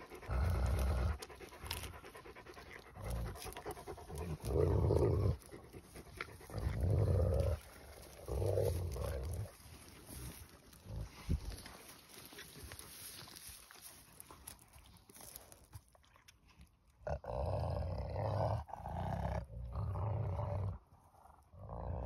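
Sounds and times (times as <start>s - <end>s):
dogs panting: 0.0s - 15.7s.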